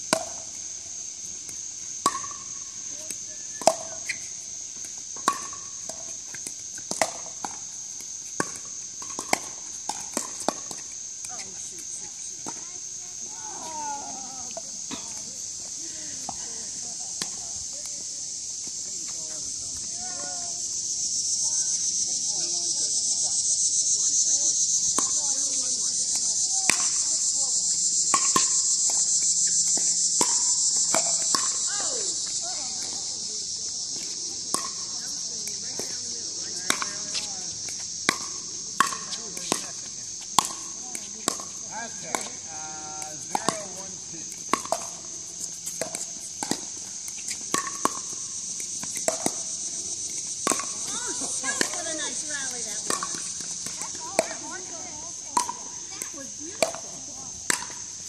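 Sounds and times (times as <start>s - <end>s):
insects chorus: 0.0s - 58.0s
paddles striking plastic ball: 43.3s - 45.0s, 50.4s - 54.4s.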